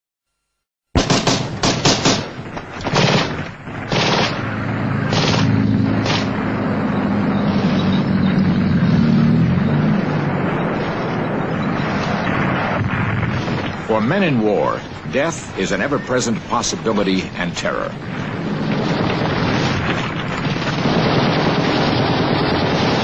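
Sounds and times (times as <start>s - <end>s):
gunshots and blasts: 1.0s - 6.6s, 18.0s - 23.0s.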